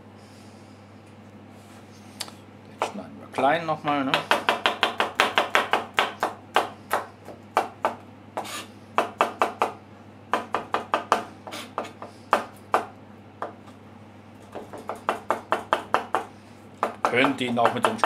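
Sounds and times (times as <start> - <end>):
knife chopping on plastic board: 3.9 - 13.6, 14.4 - 18.0.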